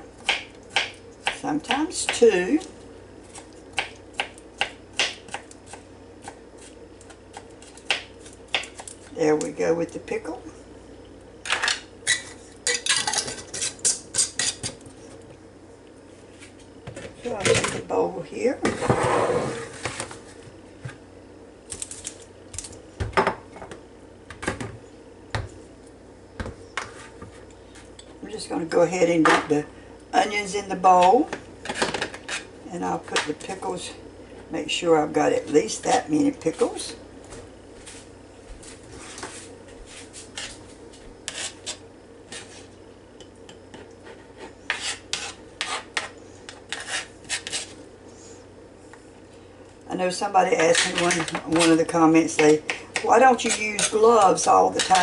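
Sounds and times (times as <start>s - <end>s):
spoon scraping plastic board: 43.8s - 47.8s, 52.4s - 55.0s.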